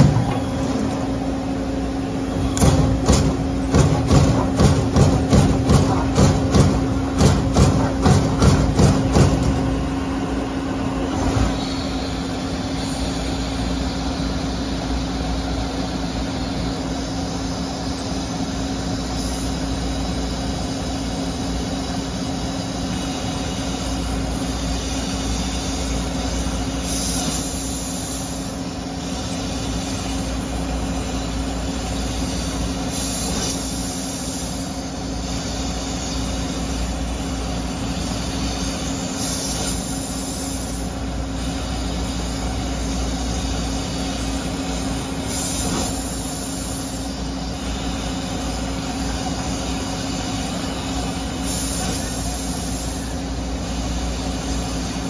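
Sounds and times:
machine knock: 0.0s - 0.5s, 2.5s - 9.7s
machine hum with constant tone: 0.0s - 55.0s
hiss: 2.1s - 55.0s.

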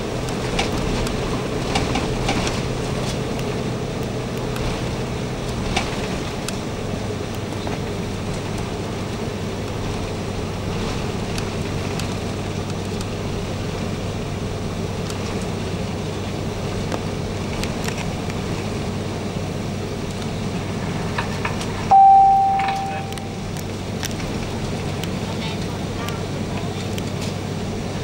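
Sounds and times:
airplane cabin hum: 0.0s - 28.0s
cabin chime: 21.9s - 23.4s.

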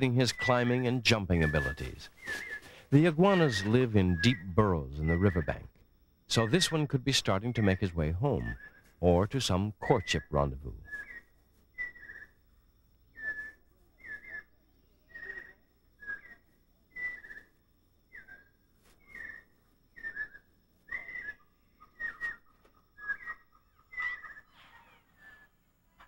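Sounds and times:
animal whistled call: 1.4s - 5.7s, 10.8s - 12.4s, 13.1s - 25.5s.

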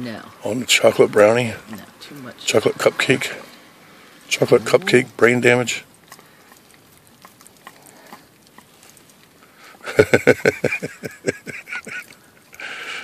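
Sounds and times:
dog licking ice cream: 4.4s - 9.6s.

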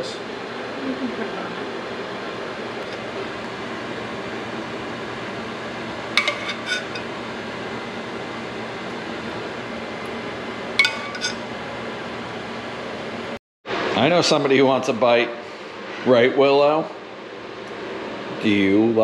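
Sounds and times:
steady background hum: 0.0s - 19.0s
metal spoon clinking on saucepan: 6.2s - 7.1s, 10.8s - 11.4s.

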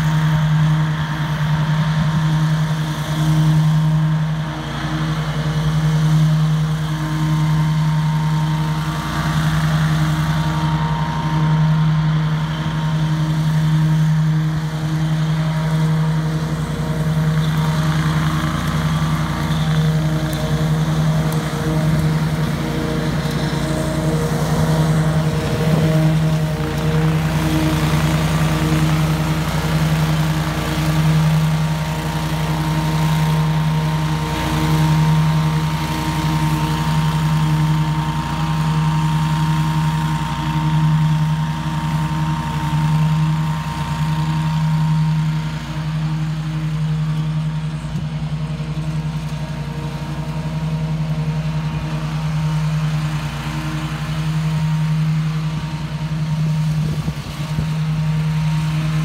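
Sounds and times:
mower engine hum: 0.0s - 59.0s.

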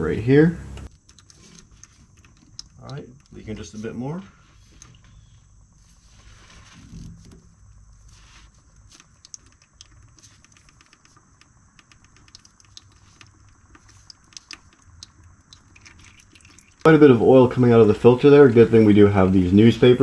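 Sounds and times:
oil dripping onto paper: 7.4s - 16.9s.

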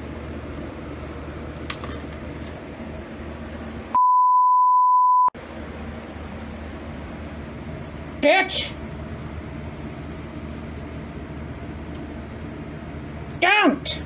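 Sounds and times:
low background hum: 0.0s - 4.0s, 5.4s - 14.0s
censor bleep: 4.0s - 5.4s.

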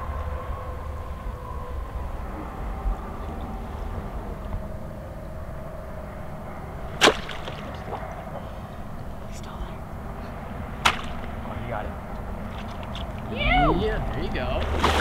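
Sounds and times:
steady low rumble: 0.0s - 15.0s
spear hitting: 7.0s - 7.9s, 10.8s - 11.3s.

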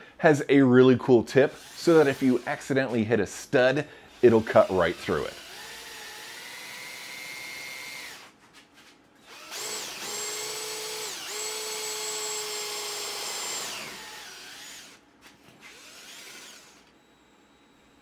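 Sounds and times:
power drill whining: 1.6s - 2.5s, 4.2s - 8.3s, 9.2s - 15.0s, 15.6s - 17.9s.

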